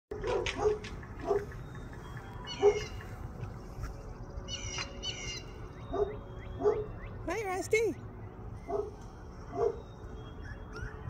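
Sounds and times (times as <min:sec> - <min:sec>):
dog barking: 0:00.1 - 0:01.6, 0:02.5 - 0:03.0, 0:05.9 - 0:06.9, 0:08.7 - 0:09.8
bird calls: 0:00.2 - 0:07.4, 0:08.2 - 0:11.0.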